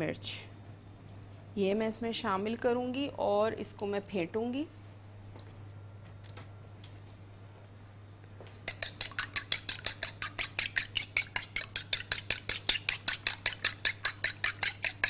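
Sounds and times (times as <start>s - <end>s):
metal utensil beating eggs in bowl: 8.6s - 15.0s.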